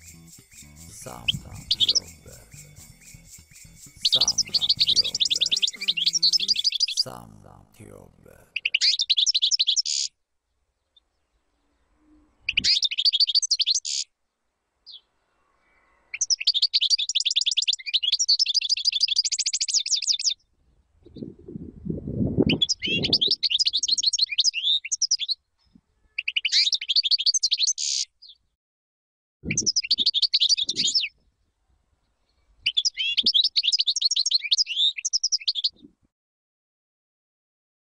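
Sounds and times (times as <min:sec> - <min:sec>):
goldfinch twittering song: 0:00.0 - 0:07.1
low noise: 0:00.0 - 0:08.7.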